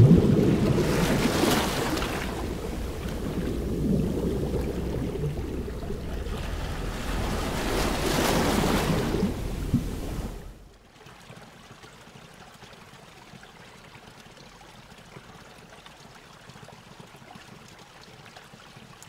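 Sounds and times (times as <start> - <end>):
ocean surf washing: 0.0 - 10.7
wave breaking: 0.0 - 10.7.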